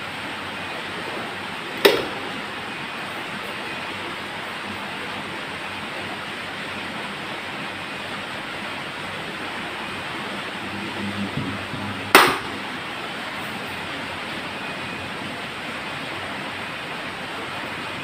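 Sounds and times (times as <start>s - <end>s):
fan whooshing air and motor: 0.0s - 18.0s
sharp knock: 12.1s - 12.6s.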